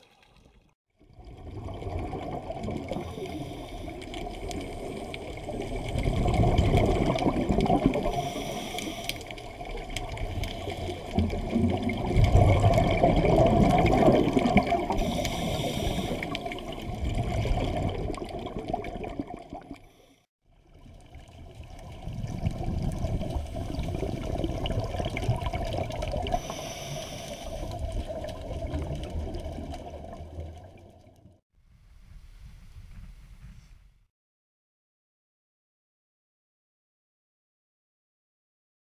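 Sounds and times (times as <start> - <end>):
underwater air bubbles rumbling: 1.0 - 19.8, 20.6 - 31.4.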